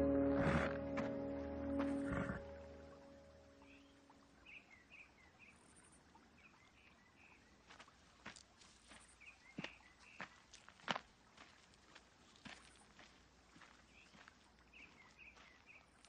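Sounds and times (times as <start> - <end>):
small birds chirping: 3.5 - 10.8, 12.2 - 16.0
footsteps crunching on gravel: 7.7 - 16.0.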